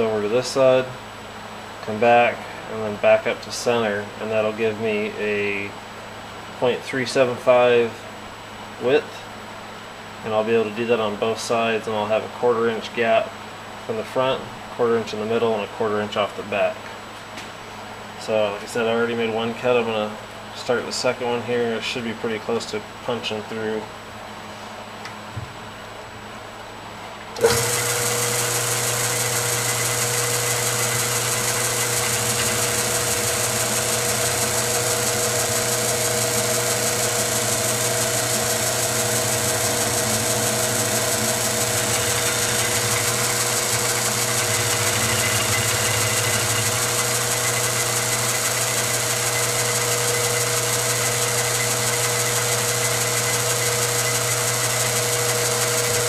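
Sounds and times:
milling machine running: 27.4s - 56.0s.

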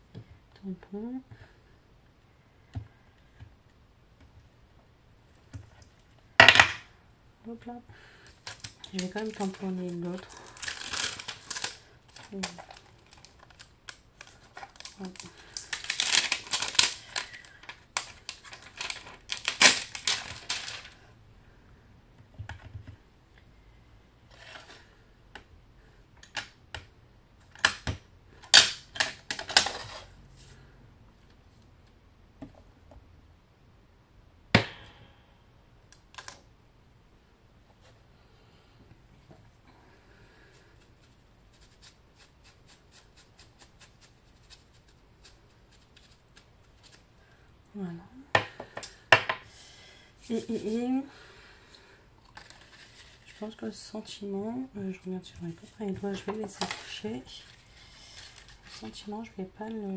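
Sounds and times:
plastic packaging rustling: 8.3s - 21.0s, 52.2s - 53.6s, 55.4s - 59.1s.

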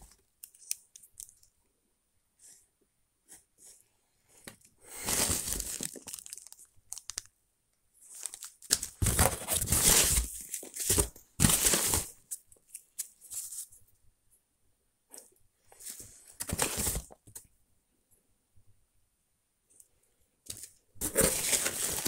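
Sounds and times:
packing peanuts rustling: 4.9s - 7.3s, 8.0s - 13.6s, 20.5s - 22.0s
plastic bag crinkling: 5.0s - 7.3s, 8.1s - 13.0s, 20.6s - 22.0s.

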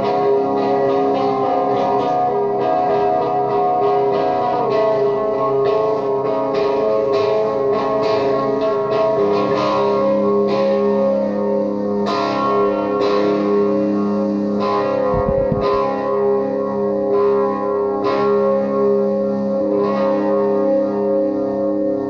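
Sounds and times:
electric guitar drone notes: 0.0s - 22.0s
picked guitar notes: 0.0s - 22.0s.

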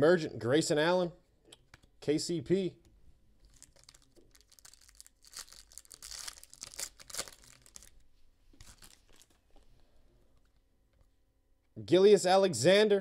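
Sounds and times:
wrapper tearing and crinkling: 3.4s - 8.0s, 8.6s - 9.4s
cards shuffled by hand: 3.5s - 9.6s.

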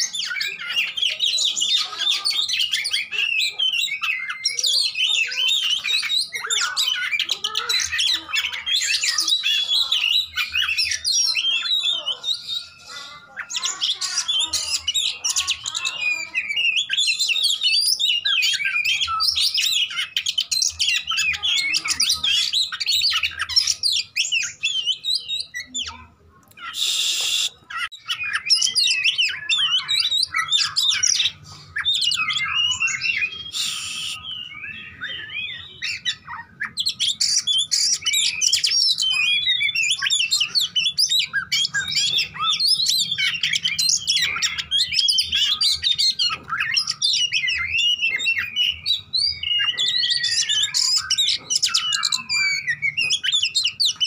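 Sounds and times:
bird singing whistles and trills: 0.0s - 54.0s
harsh bird rasps: 0.0s - 54.0s.

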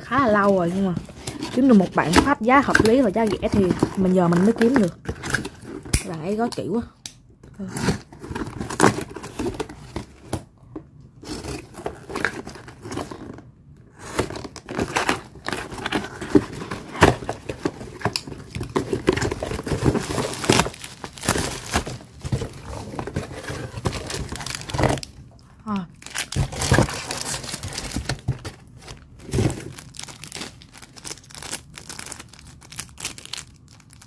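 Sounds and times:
bubble wrap rustling: 0.0s - 6.6s, 11.2s - 25.3s, 25.9s - 34.0s
plastic wrapping crinkling: 14.0s - 25.3s, 25.9s - 34.0s.

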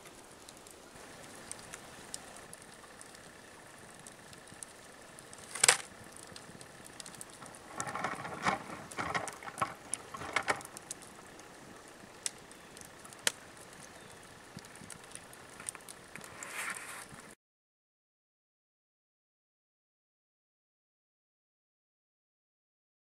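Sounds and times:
embers ticking and crackling: 0.0s - 17.4s
rustling and scuffing: 16.3s - 17.2s.

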